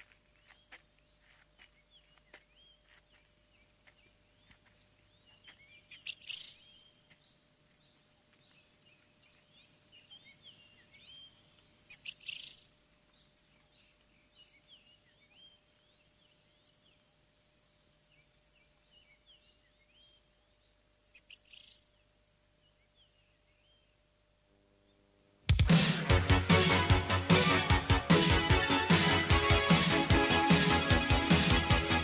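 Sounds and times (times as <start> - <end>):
faint bird chirps: 0.3 - 24.2
loud bird calls: 0.4 - 7.4, 8.3 - 22.0.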